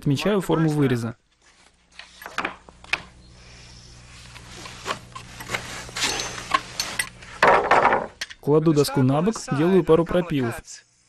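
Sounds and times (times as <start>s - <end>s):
wooden board knocking and scraping: 7.4s - 8.3s
board clattering down: 7.4s - 8.4s.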